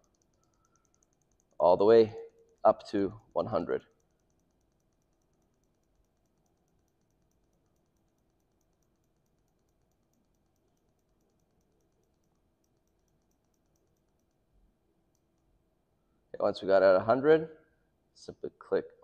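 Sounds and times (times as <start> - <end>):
faint even ticking: 0.0 - 16.4.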